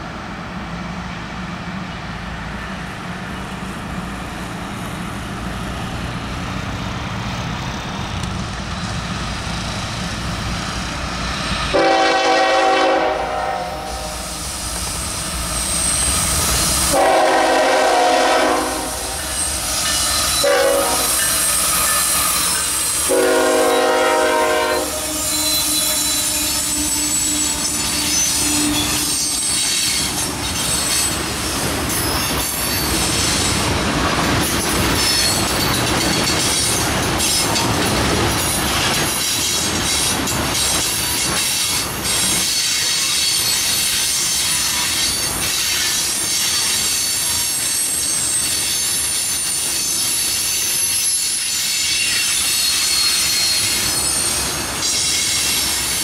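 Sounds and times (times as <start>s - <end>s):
train wheels rolling on rails: 0.0s - 56.0s
train air horn: 11.7s - 14.5s, 16.9s - 19.4s, 20.4s - 29.4s.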